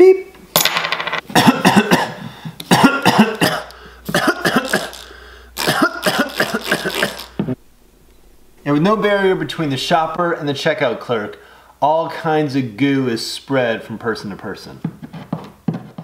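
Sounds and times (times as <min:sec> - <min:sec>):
man coughing: 0:01.3 - 0:07.4.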